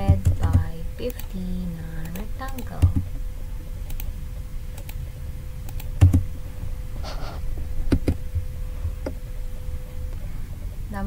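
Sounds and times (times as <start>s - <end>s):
keyboard and mouse clicks: 0.0s - 1.4s, 2.0s - 3.1s, 3.8s - 4.1s, 4.7s - 5.0s, 5.7s - 6.3s, 7.9s - 8.2s
faint steady hum: 0.0s - 11.0s.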